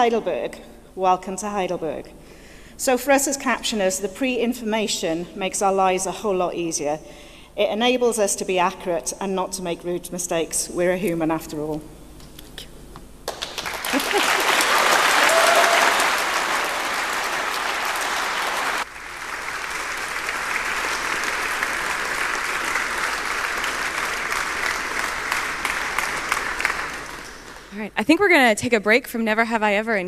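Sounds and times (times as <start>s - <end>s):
audience applauding: 13.2s - 27.7s.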